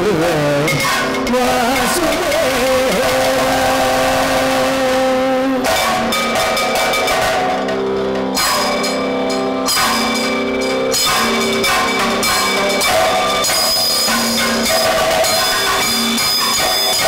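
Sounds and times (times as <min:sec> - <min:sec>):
drums being played: 0:00.1 - 0:17.0
person singing a long note: 0:01.3 - 0:05.7.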